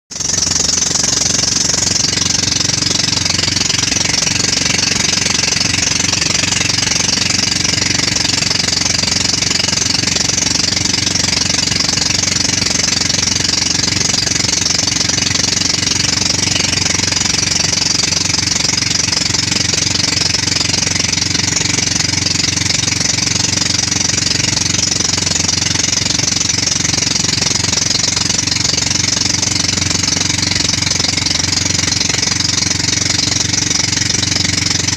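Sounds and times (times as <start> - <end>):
boat engine running: 0.1 - 34.9
water rushing past hull: 0.1 - 34.9.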